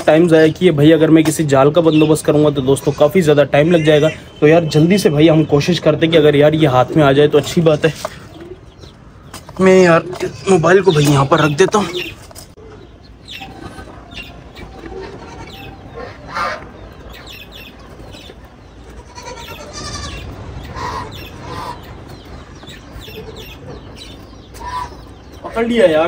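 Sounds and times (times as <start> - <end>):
poultry and aviary birds calling: 0.0 - 26.0.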